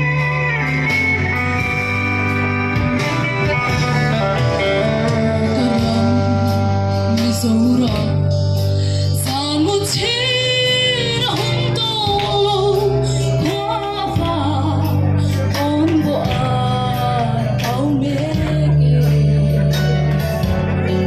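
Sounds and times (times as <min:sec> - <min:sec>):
instrumental accompaniment: 0:00.0 - 0:21.0
woman singing into microphone: 0:04.9 - 0:20.2.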